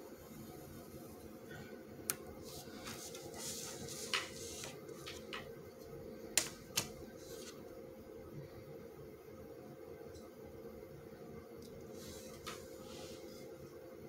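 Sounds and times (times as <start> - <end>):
ruler scraping across paper: 2.4 - 5.2.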